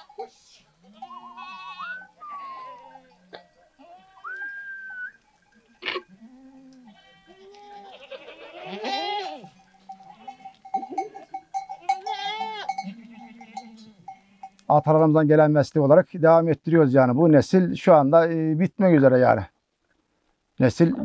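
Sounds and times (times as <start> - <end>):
goats bleating: 0.2 - 4.6, 5.7 - 14.6.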